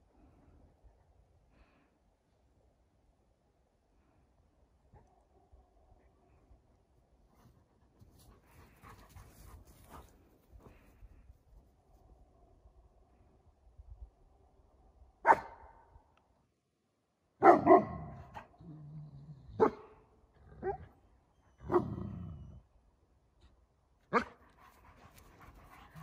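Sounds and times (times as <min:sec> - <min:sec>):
dogs barking: 0:15.2 - 0:15.6, 0:17.4 - 0:18.0, 0:19.6 - 0:19.9.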